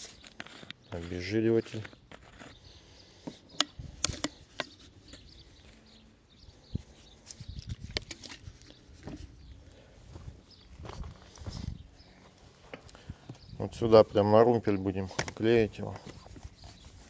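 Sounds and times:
plastic bottle clicks: 3.6 - 4.8.

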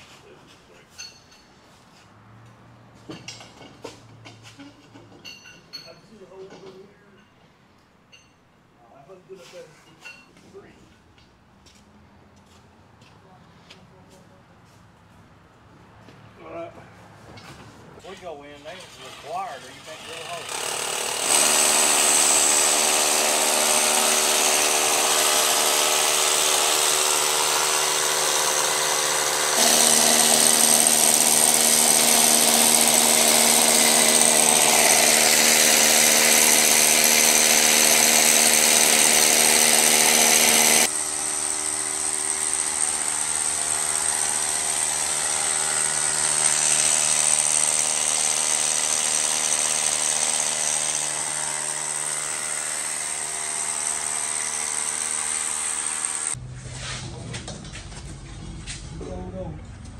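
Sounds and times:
hammer drill boring into concrete: 19.0 - 56.4.

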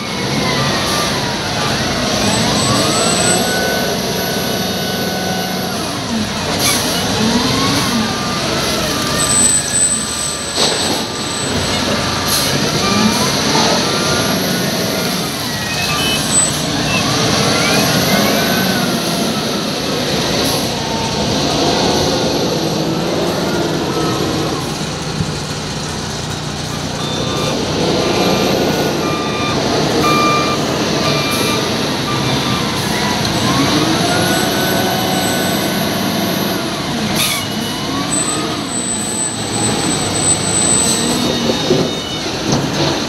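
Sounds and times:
wheel loader diesel engine: 0.0 - 43.0
reversing alarm beeps: 2.0 - 5.6, 7.4 - 12.0, 12.8 - 19.7, 26.7 - 42.8.

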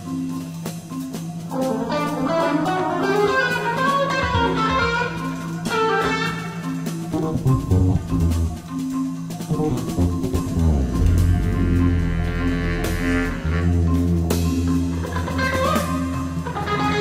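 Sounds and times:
light percussion: 0.0 - 17.0
guitar playing busy lines: 1.9 - 8.8, 9.4 - 17.0
long held low note: 9.5 - 14.6.

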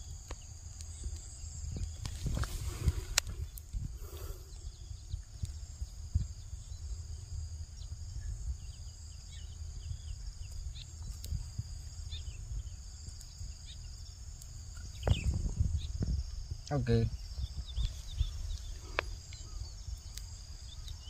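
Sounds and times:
insect drone: 0.0 - 21.0
wind rumbling on microphone: 0.0 - 21.0
microphone handling noise: 1.7 - 4.3, 14.9 - 19.1
bird chirps: 16.7 - 21.0.

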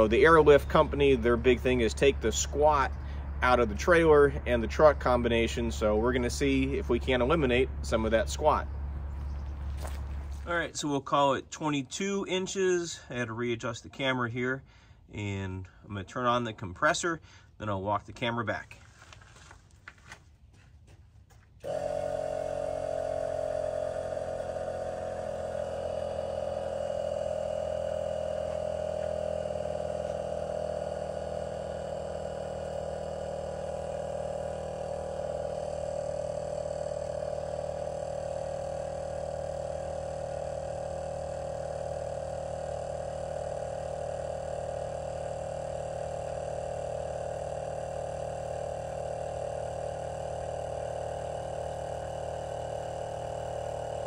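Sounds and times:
air compressor running: 0.0 - 13.7, 14.4 - 15.9, 18.7 - 54.0.

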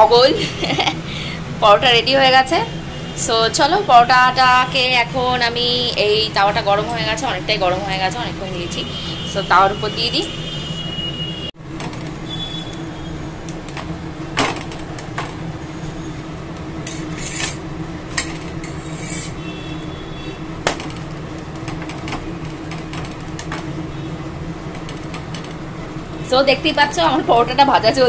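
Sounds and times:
spatula scraping on iron griddle: 16.8 - 19.6.

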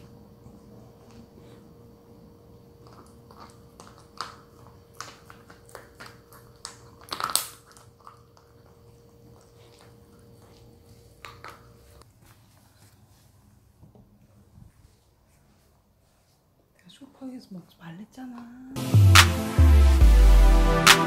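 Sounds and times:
dog chewing a bone treat: 2.7 - 12.0.

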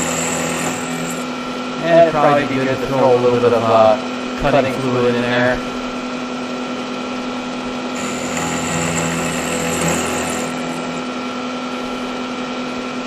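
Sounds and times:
milling machine spindle whine: 0.0 - 1.8, 7.8 - 12.3.

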